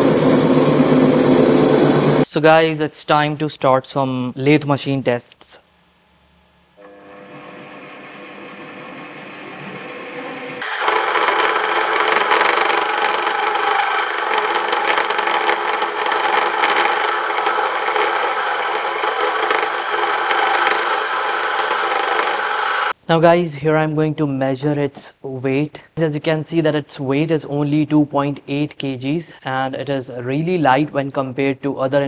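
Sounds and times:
mini lathe running: 0.0s - 2.2s, 6.8s - 23.0s
tool grinding on metal: 0.0s - 2.2s, 6.8s - 23.0s.

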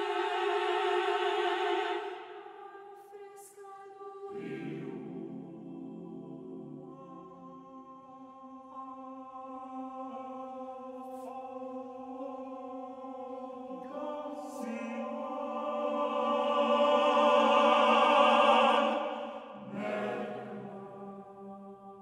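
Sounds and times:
choir singing a cappella: 0.0s - 22.0s
lower voices singing: 0.0s - 22.0s.

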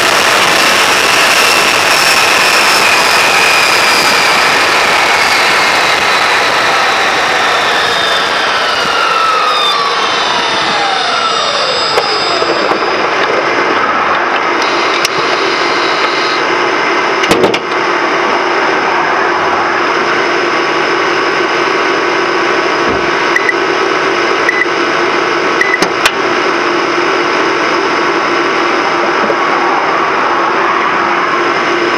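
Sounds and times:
engine rushing noise: 0.0s - 31.9s
motor whining tones: 2.0s - 16.4s.

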